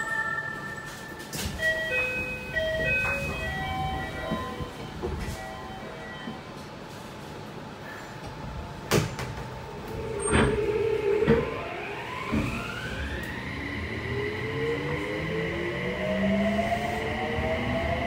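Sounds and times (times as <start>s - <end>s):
rising train motor tones: 0.0s - 6.5s, 9.7s - 18.0s
train knocks: 1.4s - 6.4s
inverter whine rising: 10.0s - 18.0s.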